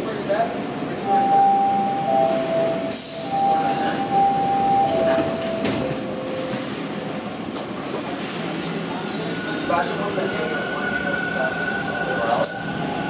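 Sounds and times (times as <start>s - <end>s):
subway car rumble: 0.0s - 13.0s
alternating two-pitch tones: 1.1s - 6.3s.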